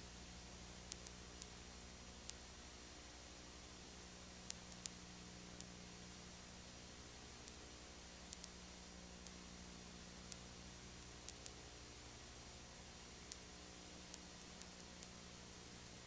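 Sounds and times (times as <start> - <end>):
background hiss and hum: 0.0 - 16.0
faint sharp clicks: 0.8 - 1.6, 2.2 - 2.5, 4.4 - 5.8, 7.4 - 7.7, 8.3 - 8.6, 9.2 - 9.4, 10.3 - 11.7, 13.2 - 15.2, 15.8 - 16.0.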